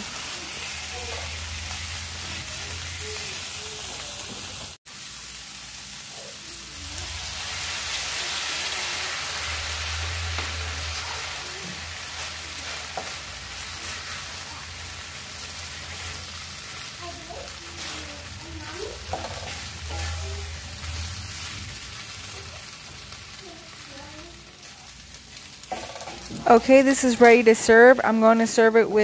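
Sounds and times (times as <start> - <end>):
food sizzling in a frying pan: 0.0 - 29.0
wooden spatula scraping a pan: 10.3 - 14.5, 17.4 - 22.0.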